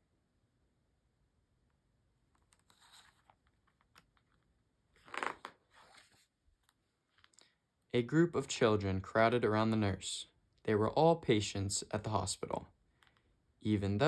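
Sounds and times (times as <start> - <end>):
paper rustling: 2.3 - 4.4
page turning swish: 2.5 - 3.8, 5.0 - 6.3.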